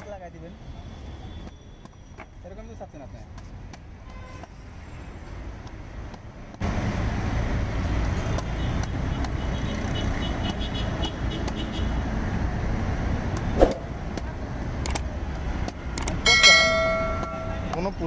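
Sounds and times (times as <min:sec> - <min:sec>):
traffic rumble: 0:00.0 - 0:18.0
high tones: 0:16.2 - 0:17.8.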